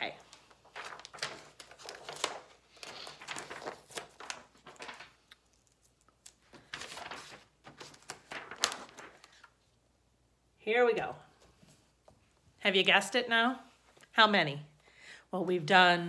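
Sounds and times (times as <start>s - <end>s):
paper rustling: 0.0s - 9.7s.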